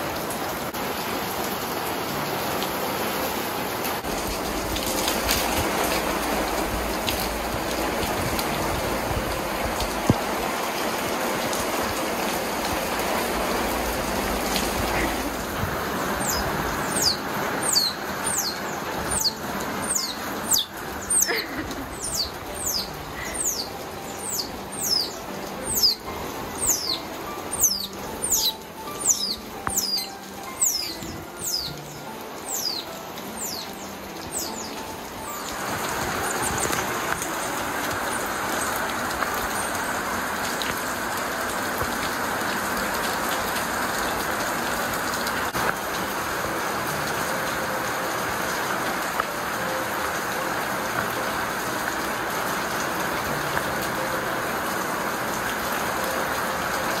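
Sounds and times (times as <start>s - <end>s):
heavy rain: 0.0s - 57.0s
baby otter squealing: 19.1s - 25.1s.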